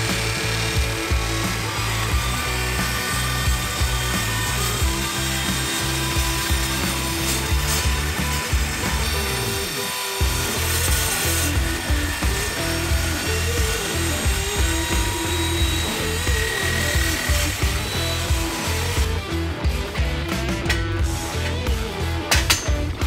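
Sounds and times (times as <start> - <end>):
background music with bass line: 0.0 - 23.0
circular saw cutting steel: 0.0 - 23.0.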